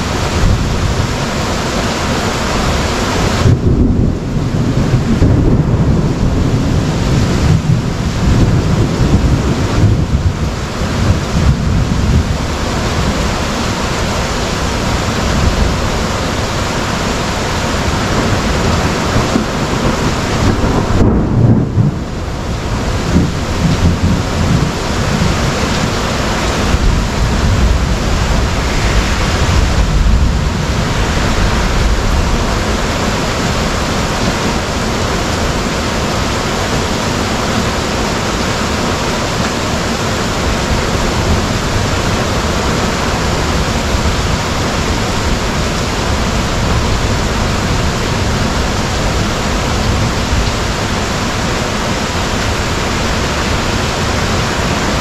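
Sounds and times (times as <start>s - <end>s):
thunder rumble: 0.0s - 39.1s
heavy rain hiss: 0.0s - 55.0s.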